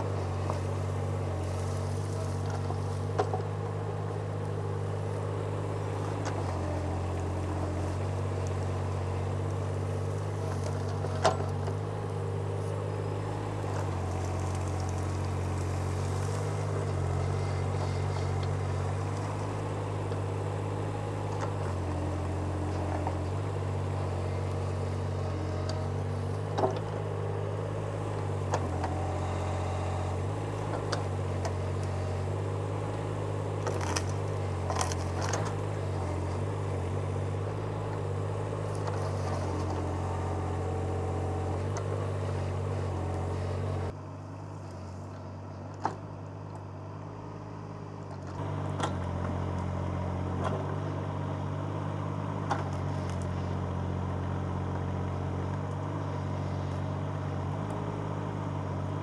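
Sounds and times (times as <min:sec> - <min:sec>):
excavator engine running: 0:00.0 - 0:59.0
roots cracking and knocking: 0:13.6 - 0:17.2, 0:33.6 - 0:36.4.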